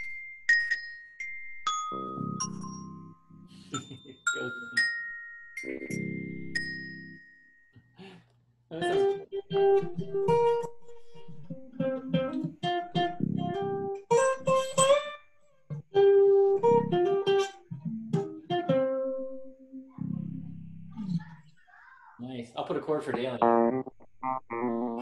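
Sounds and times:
guitar single-note melody: 0:08.7 - 0:20.7, 0:23.1 - 0:25.0.

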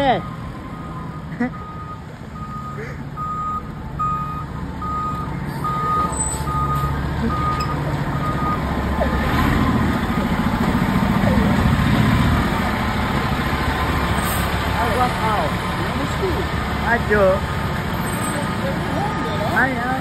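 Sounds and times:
back-up alarm beeping: 0:00.0 - 0:08.7
truck engine rumble: 0:00.0 - 0:20.0.

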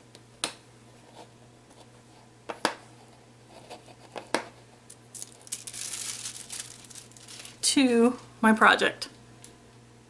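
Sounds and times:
foil ticks and crinkles: 0:04.9 - 0:07.7.

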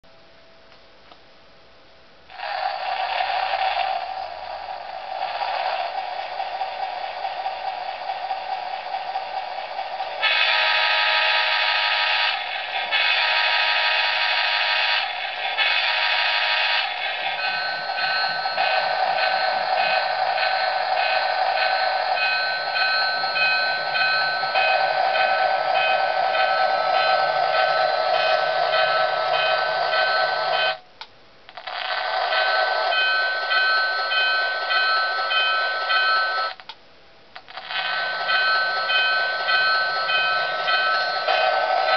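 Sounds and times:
bell ringing: 0:16.9 - 0:30.8, 0:32.2 - 0:36.6, 0:37.6 - 0:41.9.

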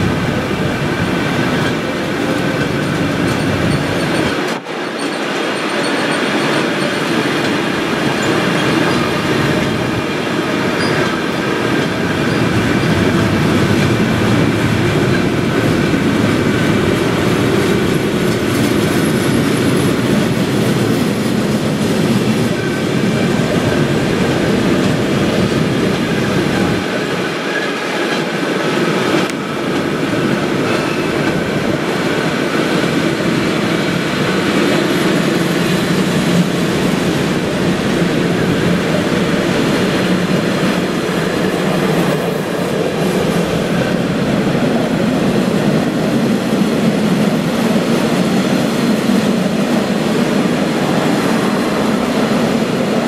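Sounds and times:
train wagons rumbling on rails: 0:00.0 - 0:53.0
high wheel squeal: 0:01.5 - 0:10.0, 0:10.6 - 0:13.4.

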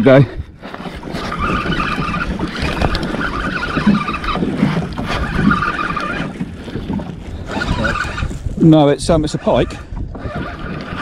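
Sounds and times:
wind buffeting microphone: 0:00.0 - 0:11.0
fishing reel being cranked: 0:01.0 - 0:06.4, 0:07.4 - 0:08.6, 0:09.2 - 0:11.0.

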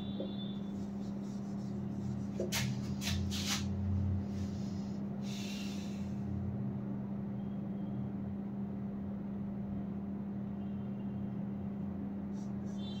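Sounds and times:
marker on whiteboard: 0:00.0 - 0:04.7, 0:12.3 - 0:13.0.

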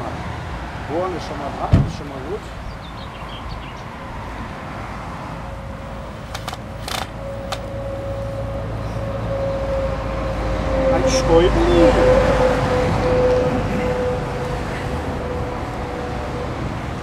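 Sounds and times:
sharp clicks: 0:06.3 - 0:07.7.

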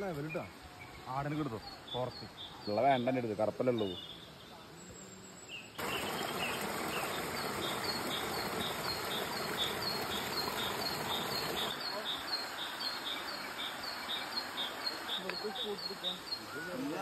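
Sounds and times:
water rushing over rocks: 0:05.8 - 0:17.0.

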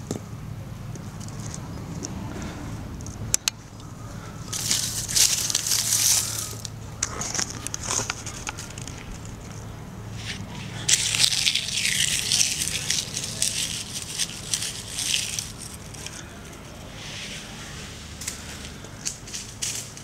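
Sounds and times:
dry leaves crunching underfoot: 0:04.1 - 0:20.0.

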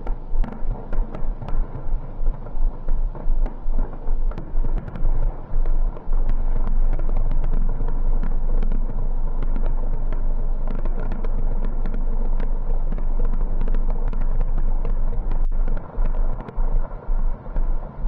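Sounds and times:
fireworks rumbling and crackling: 0:00.0 - 0:18.0.

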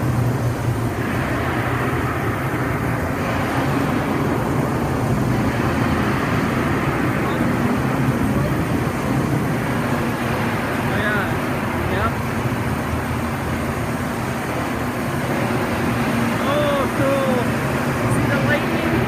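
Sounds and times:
artificial rain pouring into pool: 0:00.0 - 0:19.0.

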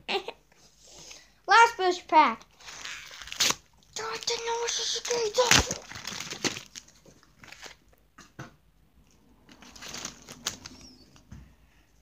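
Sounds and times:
foil pack and cards crinkling: 0:02.6 - 0:07.9, 0:09.5 - 0:11.2.

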